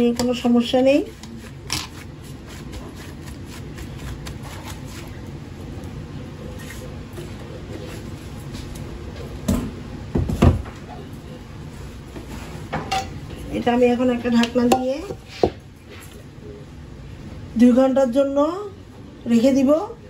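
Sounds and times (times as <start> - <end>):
gloved hand rubbing dough: 0.8 - 8.8.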